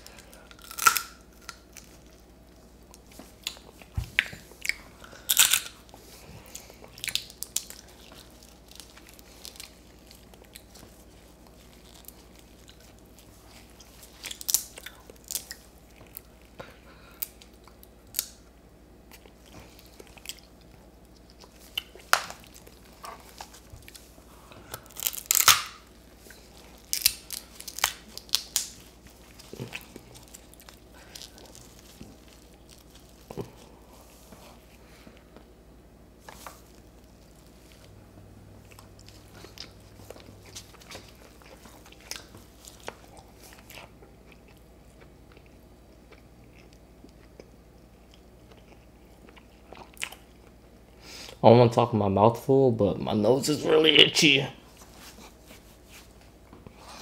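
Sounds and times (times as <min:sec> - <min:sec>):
crab shell crunching: 0:00.0 - 0:02.1, 0:04.2 - 0:05.9, 0:19.8 - 0:33.8
chewing and biting: 0:19.1 - 0:33.8, 0:38.6 - 0:50.7.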